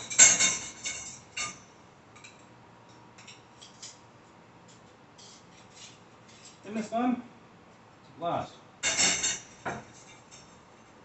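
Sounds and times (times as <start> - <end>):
metal rods clinking: 0.0 - 1.6.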